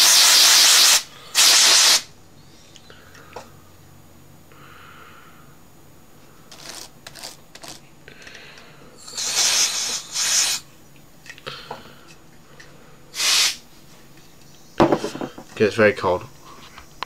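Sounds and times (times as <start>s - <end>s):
compressed air hissing: 0.0s - 2.1s, 6.5s - 10.8s, 13.1s - 13.8s.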